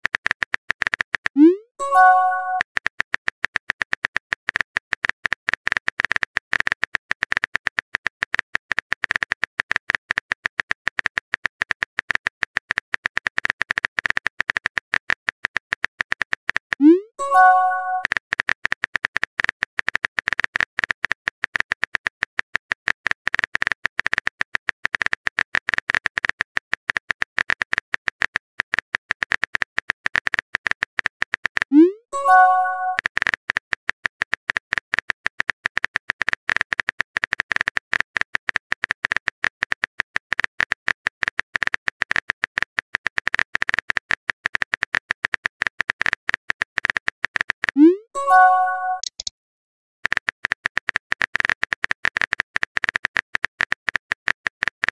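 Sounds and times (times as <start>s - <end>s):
keyboard typing clicks: 0.2s - 2.7s, 16.5s - 18.1s, 31.5s - 33.1s, 45.4s - 49.3s
rising pop and chime: 1.8s - 2.6s, 17.2s - 18.0s, 32.2s - 33.0s, 47.8s - 49.2s.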